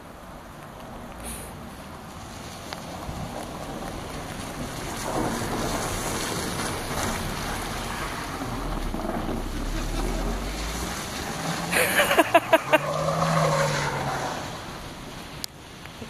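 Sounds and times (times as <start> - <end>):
low rumble: 4.6 - 11.8
car engine running: 6.5 - 12.8.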